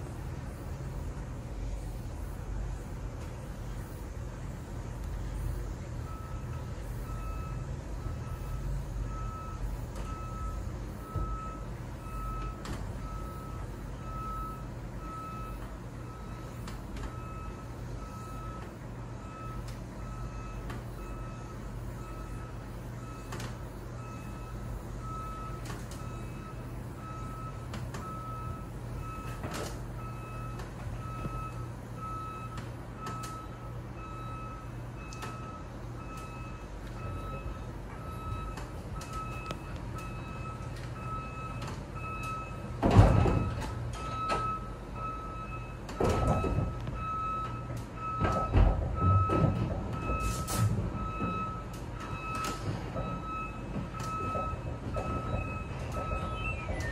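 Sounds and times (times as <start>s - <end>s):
cable car hum and rumble: 0.0s - 56.9s
warning beeps: 30.0s - 42.6s, 50.0s - 56.9s.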